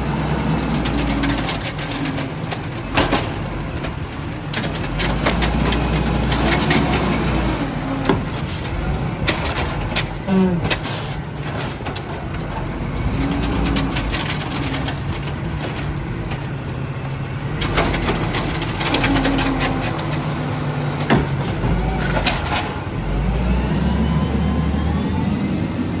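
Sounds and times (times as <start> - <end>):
trash cart clanks: 0.6 - 23.2
truck engine hydraulic hum: 10.1 - 11.4.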